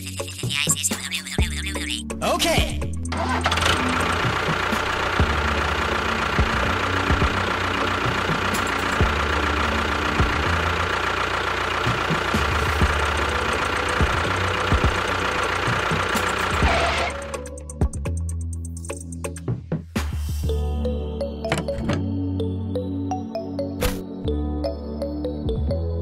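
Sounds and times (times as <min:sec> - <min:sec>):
tractor engine chugging: 0:02.9 - 0:18.0.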